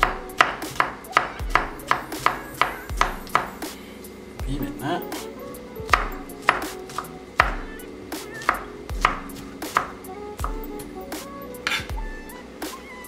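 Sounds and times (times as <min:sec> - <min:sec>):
knife chopping on wooden board: 0:00.0 - 0:03.6, 0:05.9 - 0:07.6, 0:08.4 - 0:10.6, 0:11.6 - 0:12.0.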